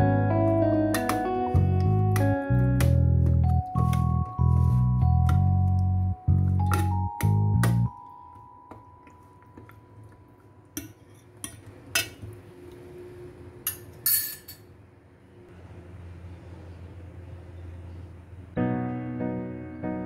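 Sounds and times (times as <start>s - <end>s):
metal spoon clinking on steel bowl: 13.7s - 14.6s.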